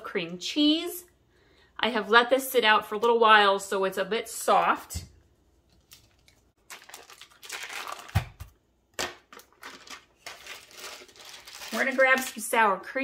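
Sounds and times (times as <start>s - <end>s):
foil wrapper crinkling: 5.8s - 12.6s.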